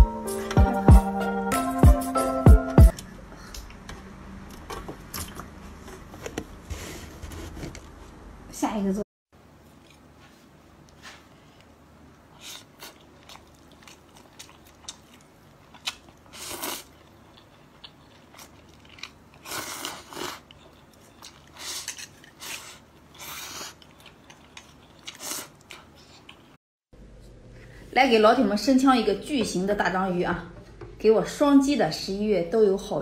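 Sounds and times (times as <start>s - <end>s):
chewing and mouth smacks: 11.6s - 26.6s.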